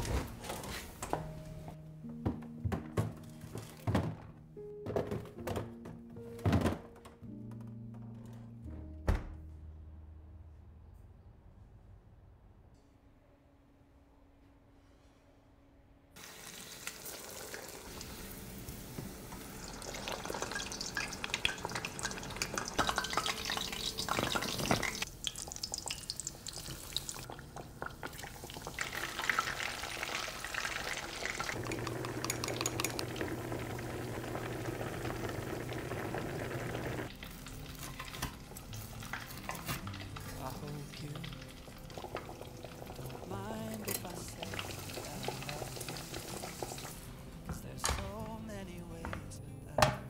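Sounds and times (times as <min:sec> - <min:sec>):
food deep-frying in oil: 0:16.2 - 0:43.3, 0:44.0 - 0:47.0.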